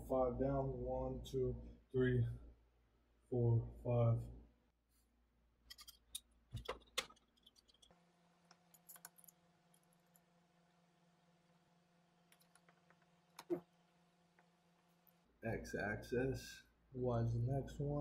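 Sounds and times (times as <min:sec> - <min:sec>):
low steady hum: 0:00.0 - 0:18.0
screwdriver and metal parts clicking: 0:05.7 - 0:07.9, 0:08.5 - 0:10.3.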